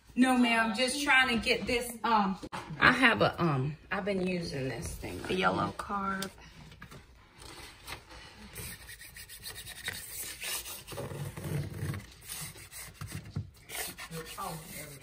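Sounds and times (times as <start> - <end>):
plastic card scraping wallpaper: 7.3 - 15.0.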